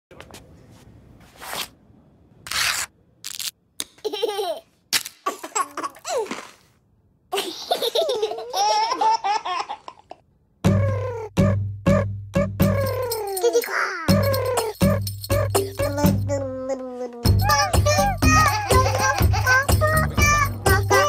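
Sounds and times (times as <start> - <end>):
baby laughing: 4.0 - 4.7, 5.3 - 6.4, 7.3 - 11.4, 12.6 - 21.0.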